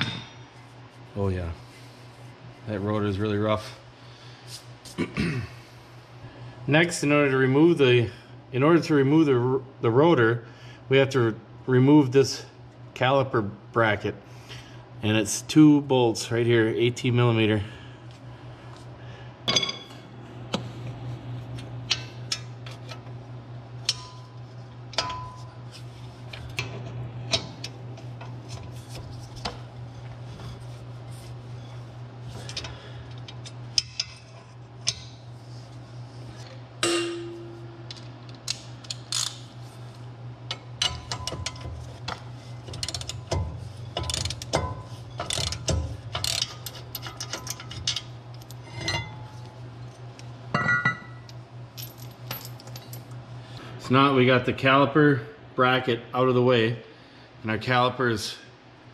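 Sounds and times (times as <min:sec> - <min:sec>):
low hum: 0:17.6 - 0:54.0
ratchet clicks and metal clinks: 0:36.8 - 0:39.4, 0:40.5 - 0:49.1.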